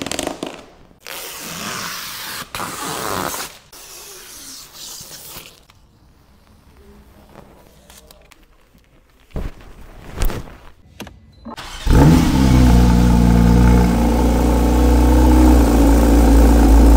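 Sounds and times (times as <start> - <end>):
tape ripping off: 0.0 - 5.8.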